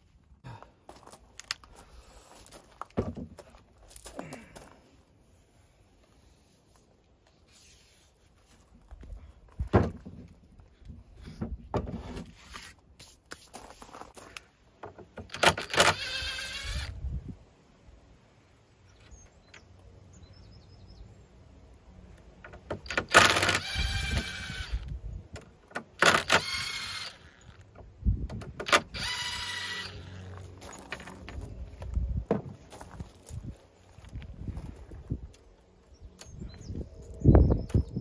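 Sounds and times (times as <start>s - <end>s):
impact driver driving screws: 15.2s - 16.9s, 22.7s - 24.9s, 25.8s - 27.6s, 28.6s - 30.2s.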